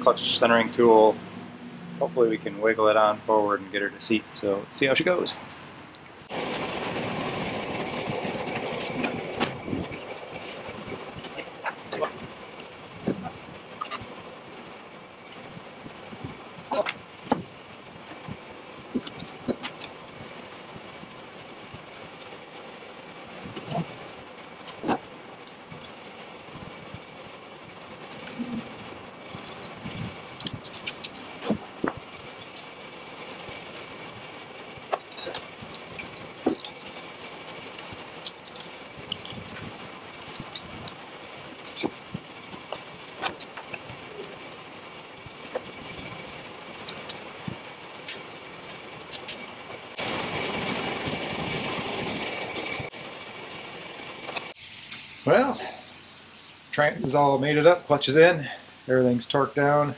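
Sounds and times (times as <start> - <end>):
metal clanks and knocks: 29.3 - 44.4.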